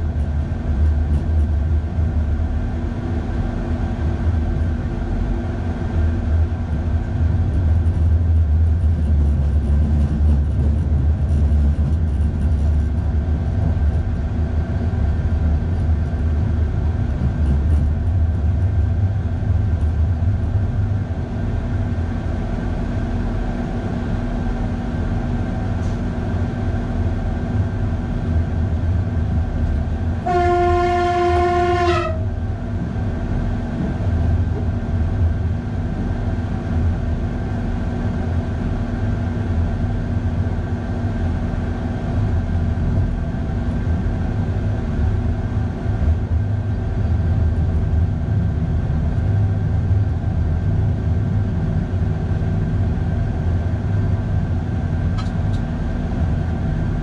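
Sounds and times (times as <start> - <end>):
train rumble and hum: 0.0 - 57.0
train horn blast: 30.2 - 32.4.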